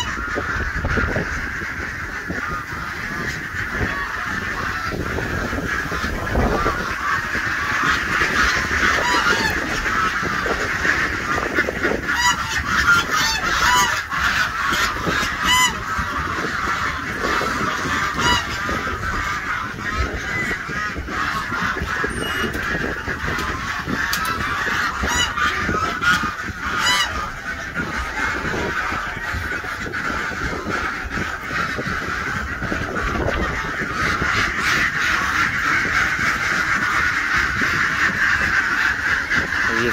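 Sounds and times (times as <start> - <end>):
waterfowl flock calling: 0.0 - 39.9.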